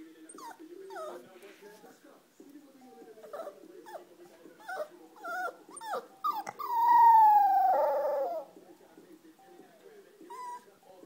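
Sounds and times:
puppy whimpering and whining: 0:00.3 - 0:01.3, 0:02.9 - 0:08.5, 0:10.2 - 0:10.8.

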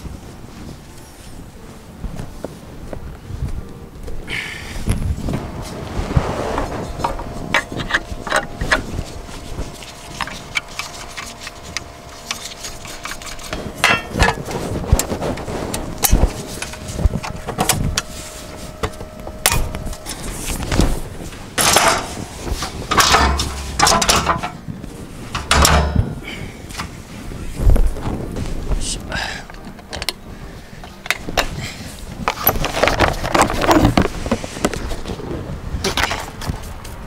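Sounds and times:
scraping and rustling: 0:04.8 - 0:37.0
metal parts knocking and rattling: 0:06.9 - 0:18.1, 0:21.6 - 0:24.7, 0:25.3 - 0:26.2, 0:32.2 - 0:34.8.

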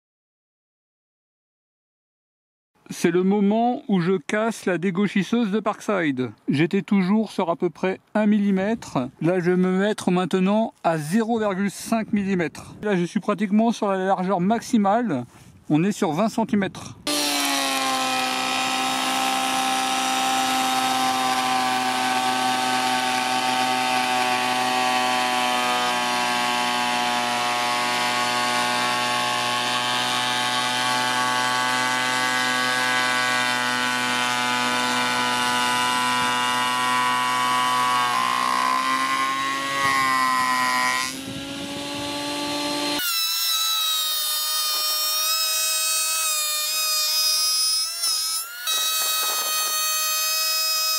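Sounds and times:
planer machine whine: 0:17.1 - 0:50.9.

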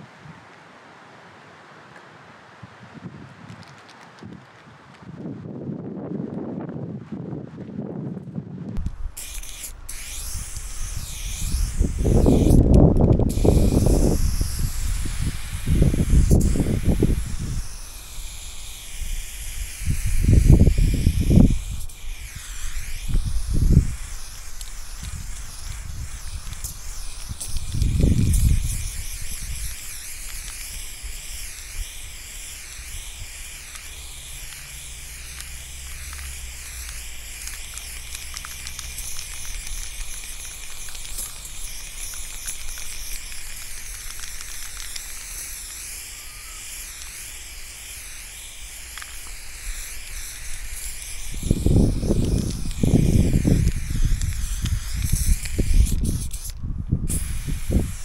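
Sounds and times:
spray paint can hissing: 0:08.8 - 0:58.0.

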